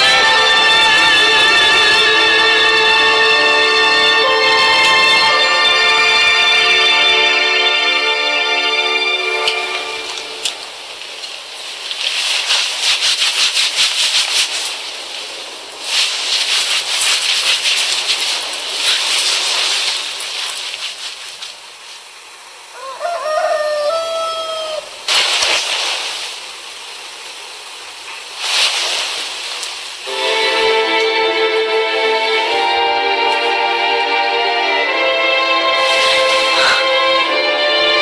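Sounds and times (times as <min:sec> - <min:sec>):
rooster crowing: 0:22.7 - 0:25.0, 0:36.4 - 0:37.0.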